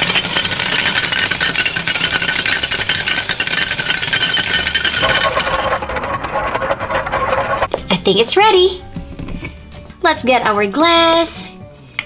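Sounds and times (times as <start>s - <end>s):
toy blender motor whir: 0.0s - 6.0s
plastic pieces rattling: 0.0s - 7.7s.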